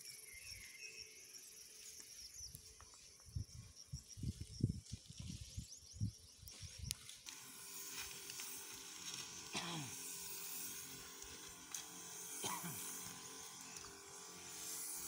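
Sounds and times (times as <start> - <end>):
faint insect chirps: 0.0 - 15.0
sprayer nozzle hissing: 7.2 - 15.0.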